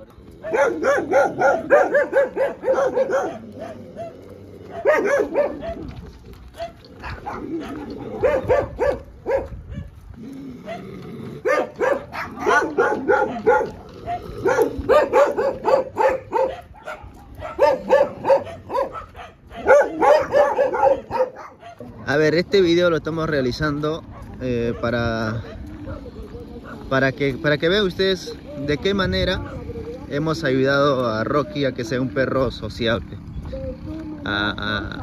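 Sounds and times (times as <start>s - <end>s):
dog barking: 0.4s - 9.9s, 10.6s - 22.2s, 24.1s - 26.9s, 29.4s - 29.7s.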